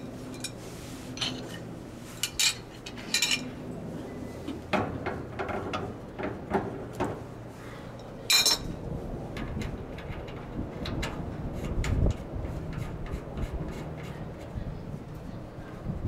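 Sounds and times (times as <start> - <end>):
wrenches clinking on metal: 2.2 - 3.5, 8.3 - 8.7.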